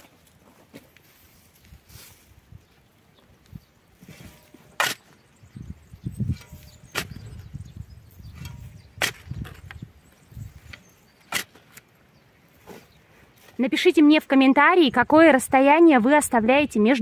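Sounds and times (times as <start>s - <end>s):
scrapes of earth: 0.0s - 2.5s, 4.0s - 5.4s, 6.2s - 13.7s
garden tool chopping soil: 4.1s - 5.2s, 6.4s - 7.3s, 8.4s - 9.8s, 10.8s - 11.8s.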